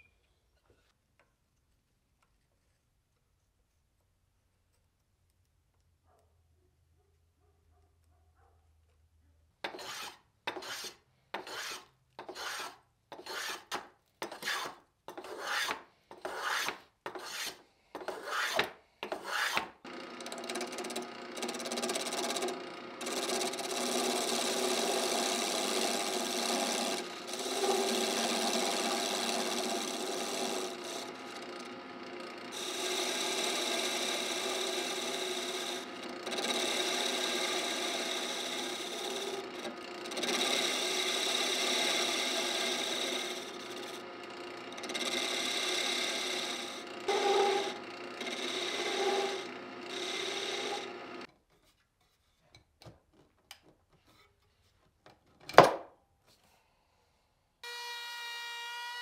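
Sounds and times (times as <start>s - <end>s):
chisel cutting spinning wood: 9.6s - 51.3s
hand tool cutting wood: 9.7s - 51.3s
wood lathe running: 19.3s - 51.3s.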